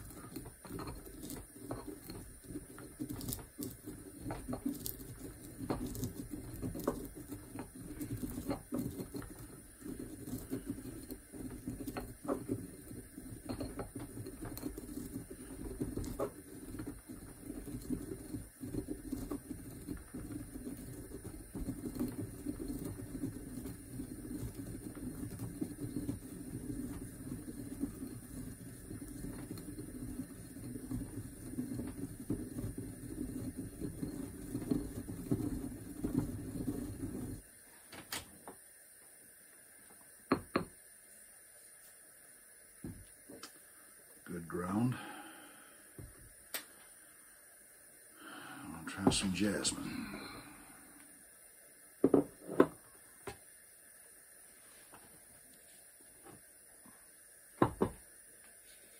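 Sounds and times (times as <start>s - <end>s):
pestle grinding in mortar: 0.0s - 37.4s.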